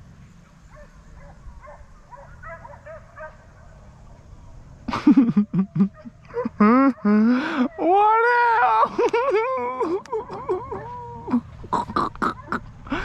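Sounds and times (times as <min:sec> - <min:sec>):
hounds baying faintly: 0:00.4 - 0:04.1, 0:10.0 - 0:11.5.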